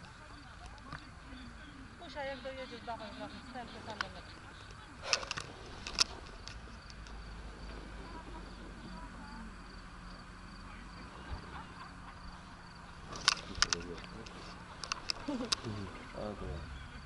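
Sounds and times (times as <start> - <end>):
crickets chirping: 0.0 - 17.0
faint low hum: 0.0 - 17.0.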